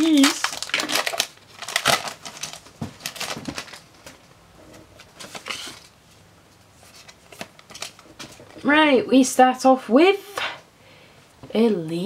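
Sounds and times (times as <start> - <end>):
foil wrapper crinkling: 0.0 - 4.3, 5.0 - 5.9, 6.8 - 8.6.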